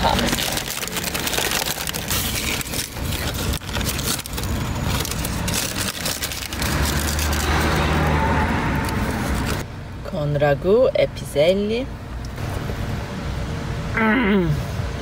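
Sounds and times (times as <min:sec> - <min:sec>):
paper bag crinkling: 0:00.0 - 0:09.6
low vehicle hum: 0:00.0 - 0:15.0.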